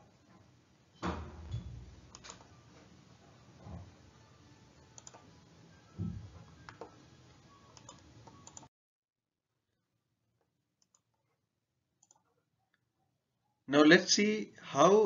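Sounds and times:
microphone hiss: 0:13.7 - 0:15.0.

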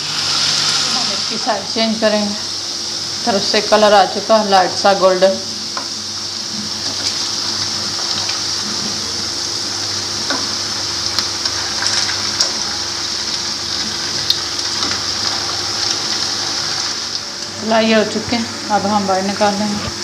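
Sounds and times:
food sizzling in hot oil: 0:00.0 - 0:20.0
oil popping and crackling: 0:05.7 - 0:17.6.

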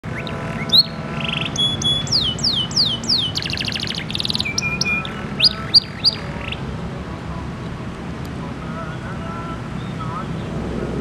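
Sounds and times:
canary singing: 0:00.0 - 0:06.7, 0:08.8 - 0:10.5.

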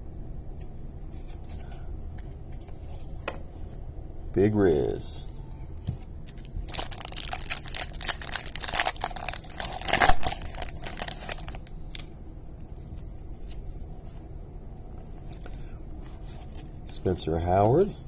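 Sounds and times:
foil wrapper tearing and crinkling: 0:06.4 - 0:12.1.

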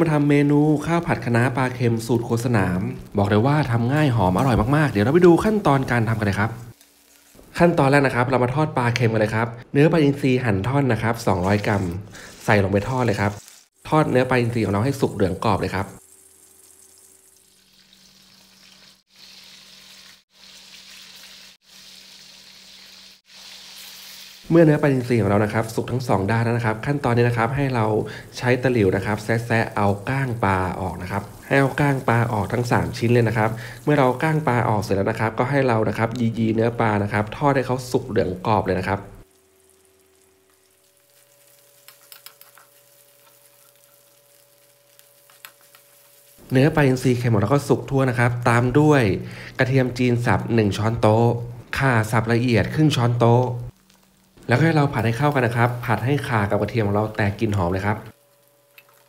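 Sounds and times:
fish sizzling in hot oil: 0:00.8 - 0:07.7, 0:11.4 - 0:59.0
spatula mashing fish: 0:41.0 - 0:46.4.

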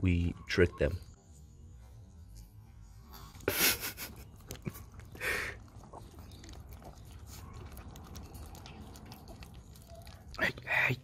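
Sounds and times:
dogs licking with wet smacking: 0:04.1 - 0:11.0.

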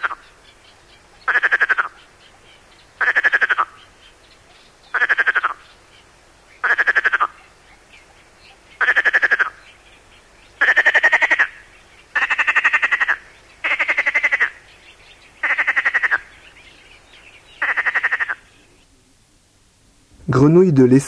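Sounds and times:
frog rasping croaks: 0:00.0 - 0:00.4, 0:01.2 - 0:04.0, 0:04.9 - 0:05.8, 0:06.6 - 0:09.8, 0:10.6 - 0:14.7, 0:15.4 - 0:16.4, 0:17.6 - 0:18.6
faint frog calls: 0:00.0 - 0:19.5.

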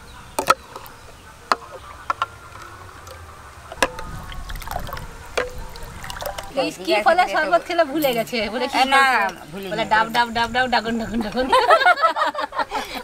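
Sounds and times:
liquid swishing: 0:02.5 - 0:06.9.

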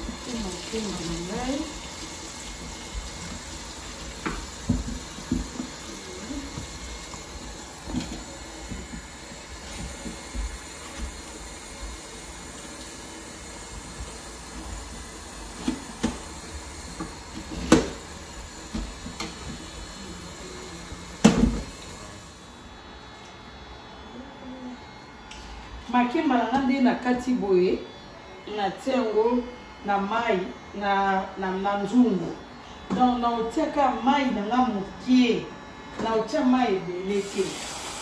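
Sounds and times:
tap water running into metal sink: 0:00.0 - 0:07.3, 0:37.2 - 0:38.0.

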